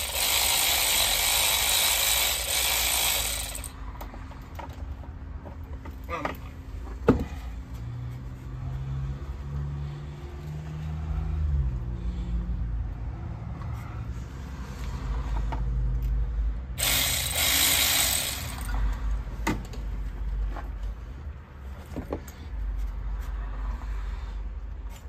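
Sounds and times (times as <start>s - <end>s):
mechanical whirring: 16.8s - 18.7s.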